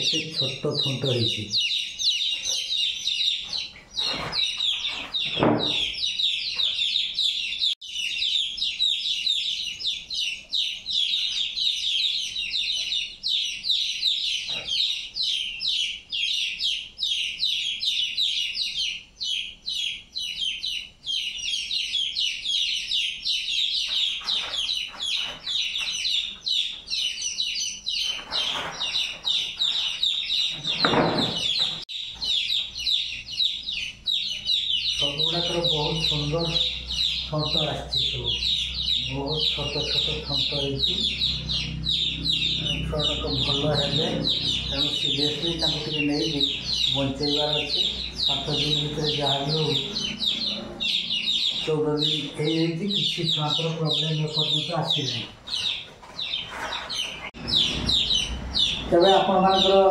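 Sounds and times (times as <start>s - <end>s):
chicks peeping: 0.0s - 59.9s.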